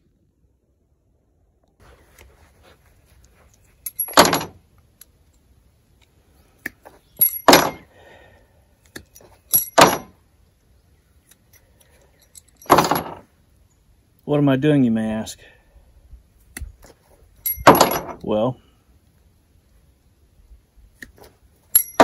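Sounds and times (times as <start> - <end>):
loose nails jingling: 3.5 - 4.6, 7.1 - 7.9, 9.0 - 10.2, 11.4 - 13.3, 17.4 - 18.2, 21.7 - 22.0.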